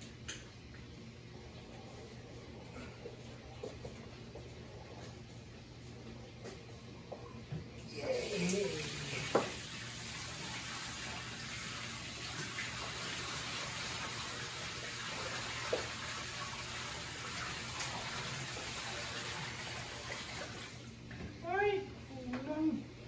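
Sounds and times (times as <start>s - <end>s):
water pouring into tank: 8.1s - 20.9s.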